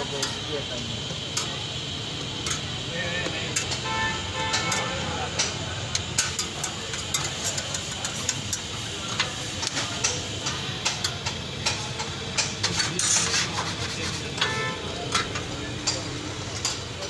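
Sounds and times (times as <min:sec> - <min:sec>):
metal spatula scraping steel griddle: 0:12.1 - 0:16.9.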